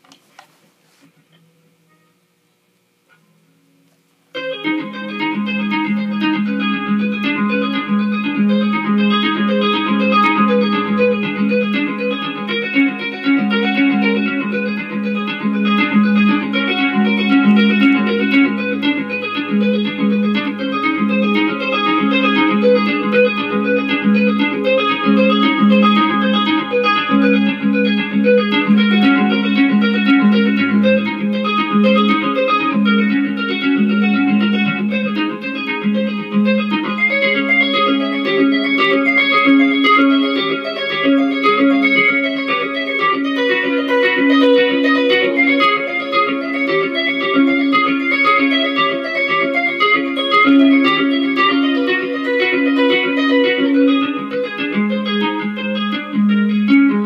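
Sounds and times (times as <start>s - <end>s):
electric guitar tapping: 3.0s - 57.0s.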